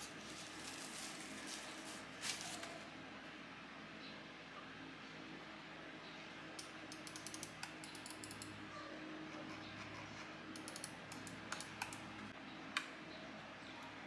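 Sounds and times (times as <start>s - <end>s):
mouse buttons clicking rapidly: 6.9s - 8.5s, 10.6s - 12.2s.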